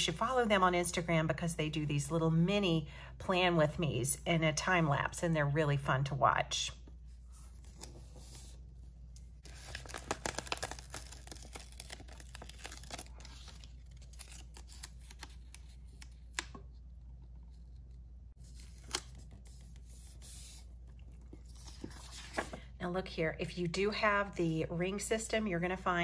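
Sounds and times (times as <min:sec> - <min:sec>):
paper crackling and rustling: 0:09.4 - 0:16.6, 0:17.5 - 0:22.7.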